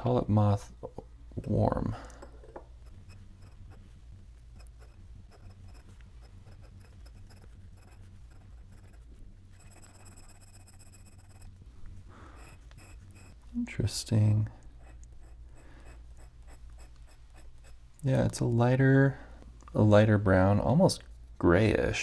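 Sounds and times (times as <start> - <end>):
pen nib scratching paper: 2.8 - 11.6, 12.3 - 13.5, 14.6 - 17.8
high squeak of nib: 9.6 - 11.5, 12.4 - 13.4.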